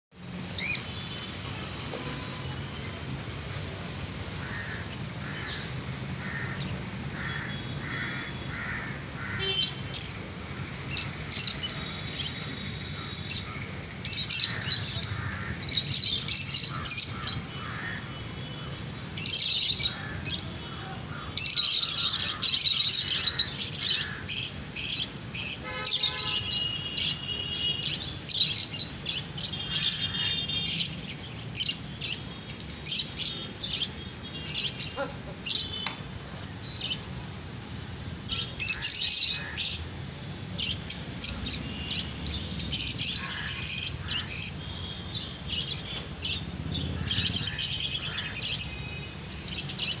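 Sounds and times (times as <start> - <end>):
lovebirds chirping and chattering: 9.2 - 17.8, 19.2 - 37.3, 38.3 - 50.0.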